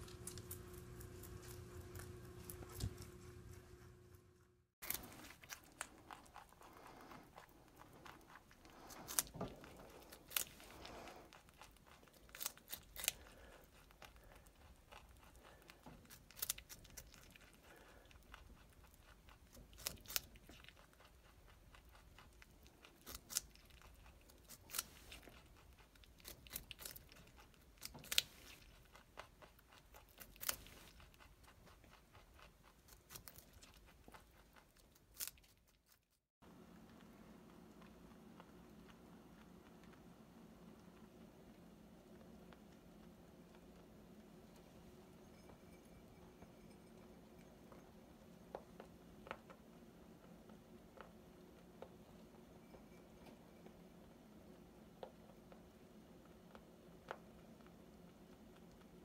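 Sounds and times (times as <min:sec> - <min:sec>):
rabbit chewing: 0:00.0 - 0:59.0
rabbit crunching carrot: 0:00.0 - 0:59.0.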